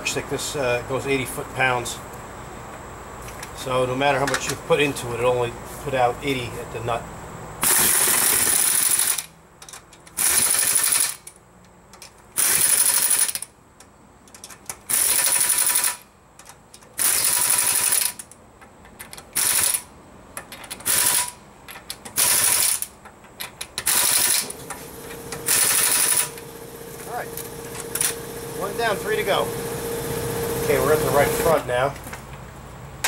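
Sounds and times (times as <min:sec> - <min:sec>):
impact wrench bursts: 0:07.6 - 0:09.3, 0:10.2 - 0:11.3, 0:12.4 - 0:13.5, 0:14.9 - 0:16.0, 0:17.0 - 0:18.2, 0:19.3 - 0:19.9, 0:20.6 - 0:21.4, 0:22.0 - 0:22.9, 0:23.8 - 0:31.6.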